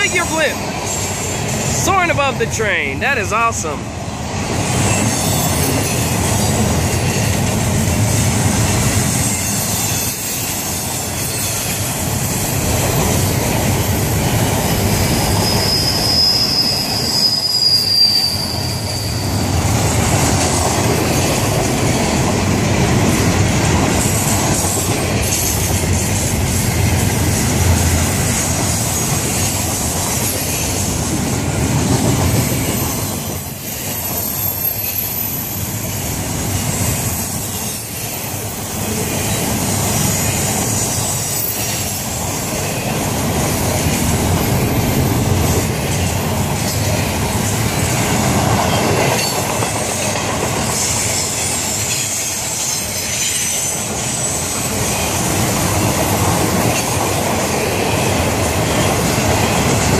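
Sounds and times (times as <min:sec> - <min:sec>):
freight train rumbling past: 0:00.0 - 0:59.9
high wheel squeal: 0:09.1 - 0:12.6, 0:14.7 - 0:19.8, 0:32.3 - 0:43.0, 0:50.7 - 0:55.3.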